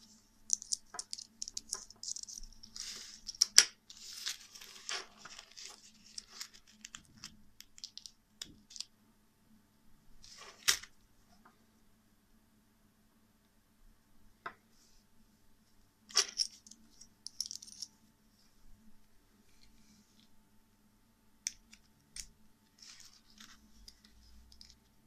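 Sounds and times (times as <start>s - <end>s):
screwdriver bits clicking and scraping: 0.5s - 3.6s, 22.9s - 24.9s.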